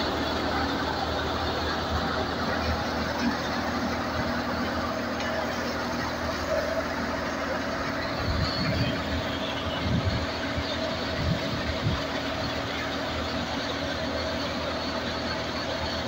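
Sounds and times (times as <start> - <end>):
tractor engine and thresher humming: 0.0 - 16.0.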